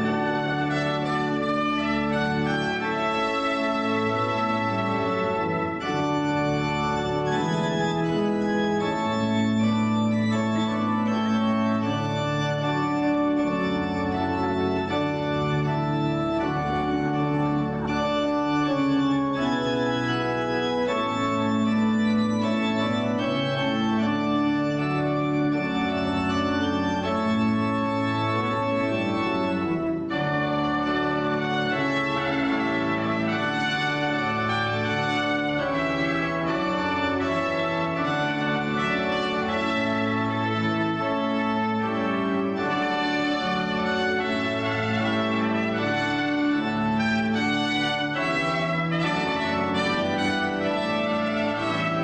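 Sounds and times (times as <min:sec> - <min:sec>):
organ playing sustained chords: 0:00.0 - 0:52.0.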